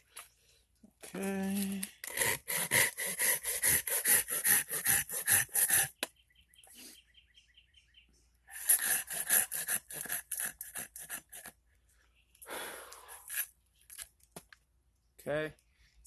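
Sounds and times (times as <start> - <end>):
hand saw cutting wood: 1.6 - 6.0, 8.5 - 11.6, 13.2 - 13.5
small bird chirping: 5.9 - 8.5.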